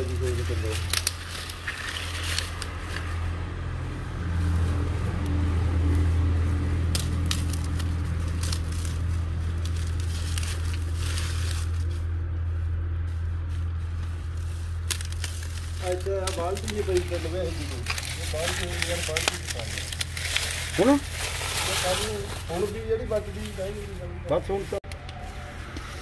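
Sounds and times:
sharp crackles and clicks: 0.0s - 3.2s, 6.8s - 12.0s, 14.0s - 22.4s.

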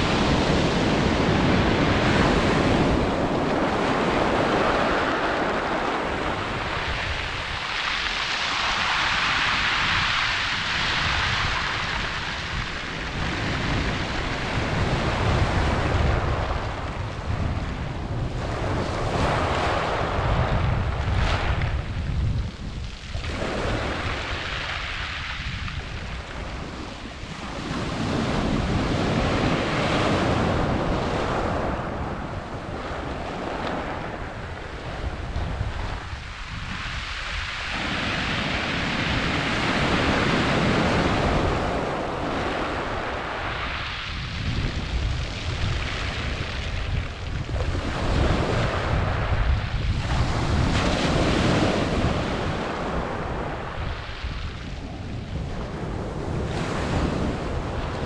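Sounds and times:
waves breaking on shingle: 21.0s - 29.9s, 42.6s - 54.4s.

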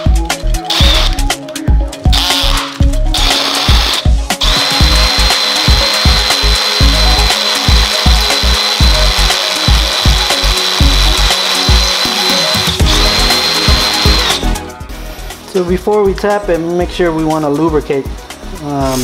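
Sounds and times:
background music with steady beat: 0.0s - 19.0s
power drill whining: 0.7s - 1.3s, 2.1s - 14.6s.

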